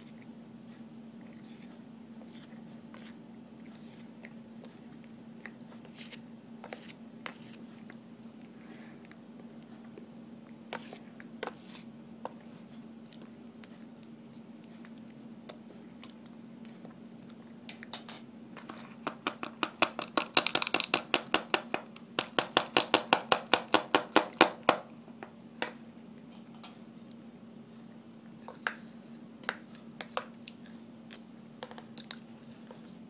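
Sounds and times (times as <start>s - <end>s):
metal spoon scraping cornstarch: 5.8s - 7.7s, 10.7s - 12.6s.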